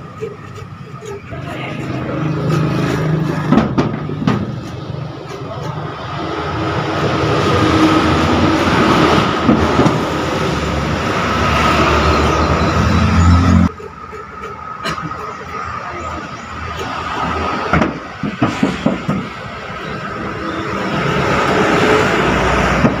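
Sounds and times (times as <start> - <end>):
vehicle engine and tyre noise: 0.0 - 23.0
sharp knocks: 3.4 - 4.9.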